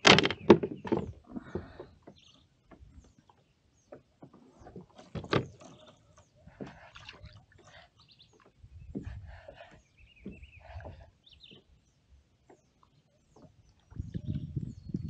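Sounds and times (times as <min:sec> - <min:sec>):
knocks and clicks of gear: 0:00.0 - 0:01.1
faint bird calls: 0:05.6 - 0:11.8.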